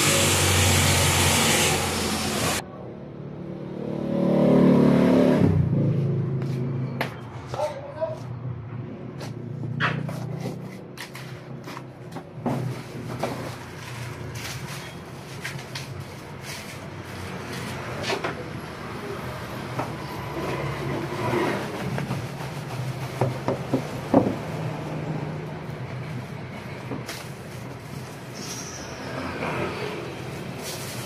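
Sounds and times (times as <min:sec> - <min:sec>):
cardboard and plastic rustling: 0:30.4 - 0:31.0.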